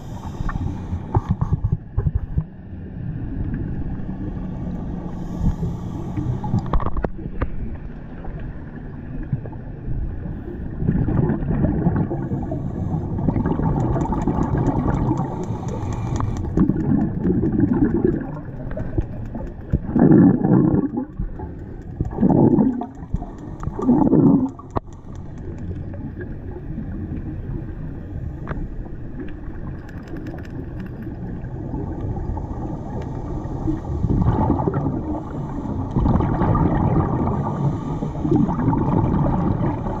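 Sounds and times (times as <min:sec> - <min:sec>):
muffled underwater rumble: 0:00.0 - 0:40.0
air bubbles gurgling: 0:10.8 - 0:26.6, 0:34.0 - 0:40.0.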